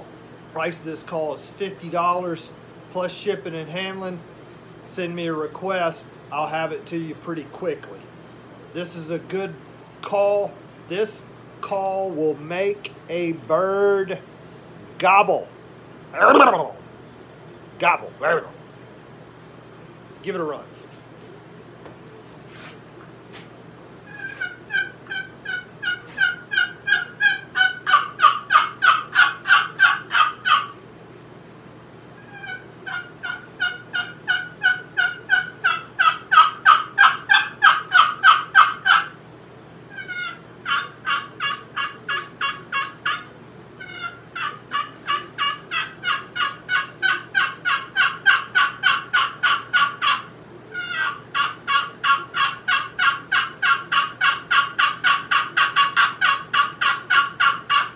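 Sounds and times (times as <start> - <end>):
wooden box call turkey yelps: 24.1 - 30.8, 32.2 - 39.1, 39.9 - 57.9.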